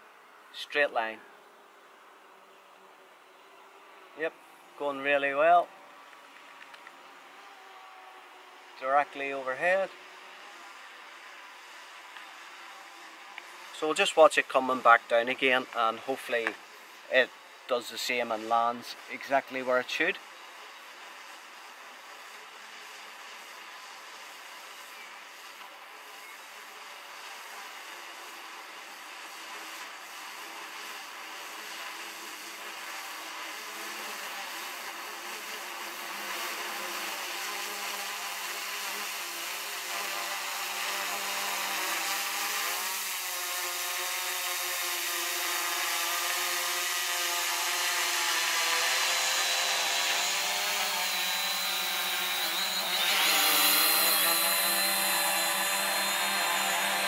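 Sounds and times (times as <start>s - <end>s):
drone propellers buzzing: 30.4s - 57.0s.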